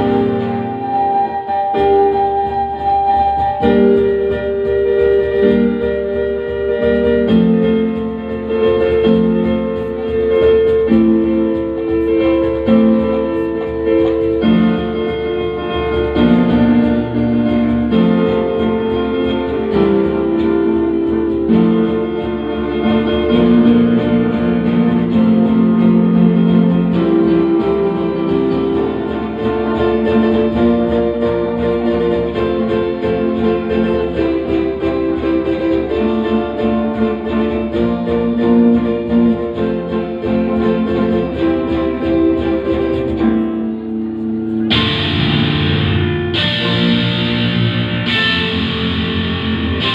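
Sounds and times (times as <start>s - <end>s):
electric guitar: 0.0s - 49.9s
electronic keyboards: 0.0s - 49.9s.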